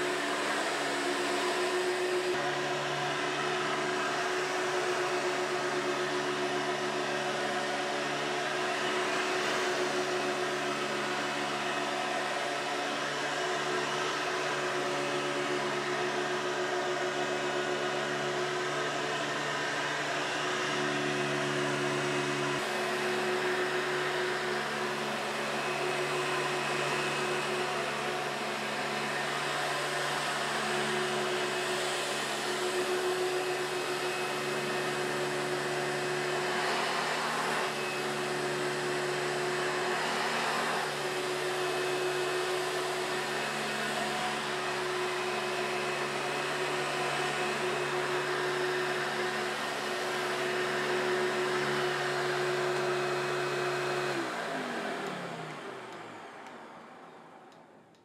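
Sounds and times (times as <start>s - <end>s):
vacuum cleaner running on carpet: 0.0s - 58.0s.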